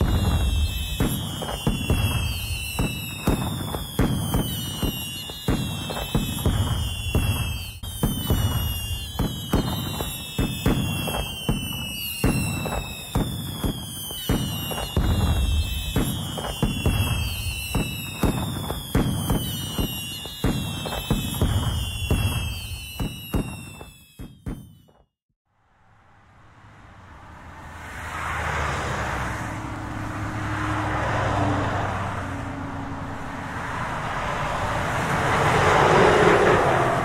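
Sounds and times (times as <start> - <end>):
fireworks bangs and crackles: 0.0 - 25.1
whistling firework: 0.0 - 25.1, 33.5 - 37.0.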